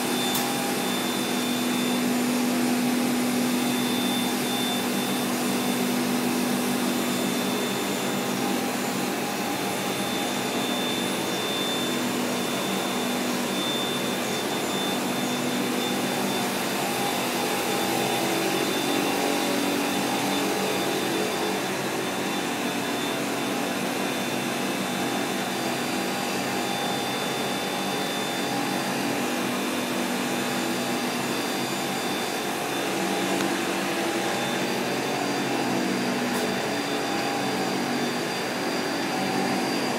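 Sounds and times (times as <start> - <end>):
machine hum: 0.0 - 39.9
thin high whine: 0.0 - 39.9.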